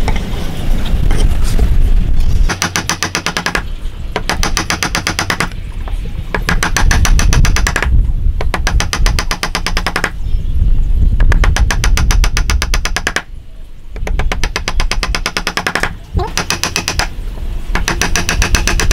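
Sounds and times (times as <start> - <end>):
chisel chopping into wood: 2.5 - 5.6, 6.4 - 10.2, 11.2 - 13.3, 14.0 - 17.1, 17.8 - 18.9.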